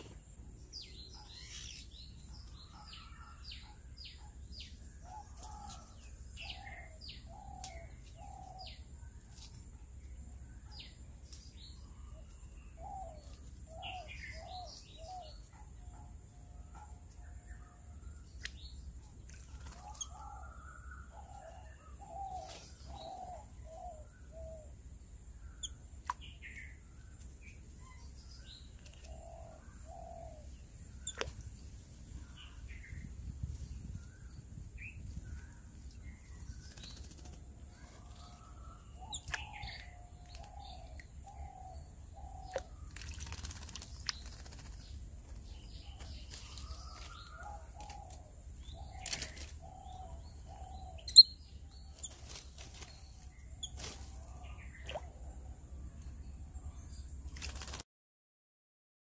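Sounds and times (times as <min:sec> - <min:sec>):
bird chirps: 0:19.5 - 0:24.7, 0:25.4 - 0:31.4, 0:33.8 - 0:44.8, 0:45.4 - 0:55.2
low hooting bird calls: 0:19.7 - 0:24.8
birds splashing in water: 0:42.5 - 0:44.9.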